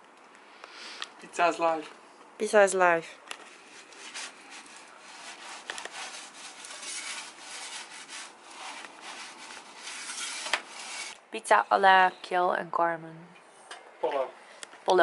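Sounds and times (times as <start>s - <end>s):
metal peel scraping oven floor: 3.7s - 11.2s.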